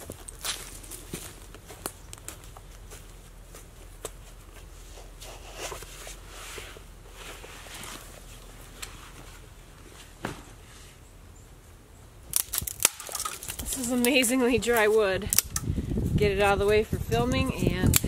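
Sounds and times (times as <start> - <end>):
footsteps on dry forest ground: 0.0 - 10.2.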